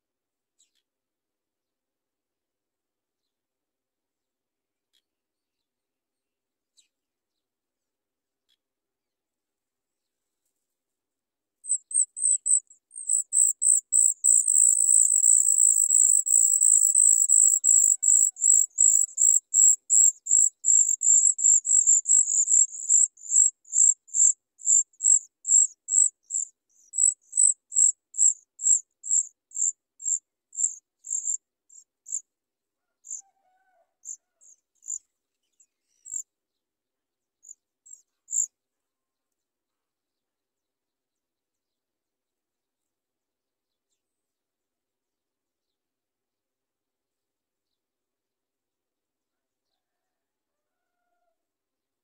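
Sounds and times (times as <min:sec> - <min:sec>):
nestlings begging calls: 0:11.7 - 0:23.9.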